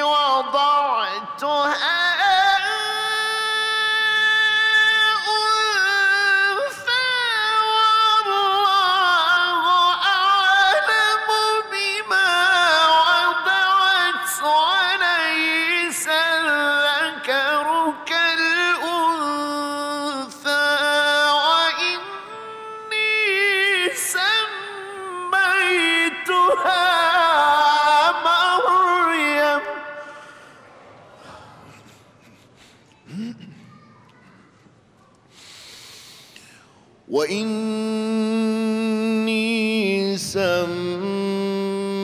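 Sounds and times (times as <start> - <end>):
man reciting melodically: 0.0 - 30.6, 36.4 - 42.0
breaths: 29.9 - 34.4, 35.3 - 37.0.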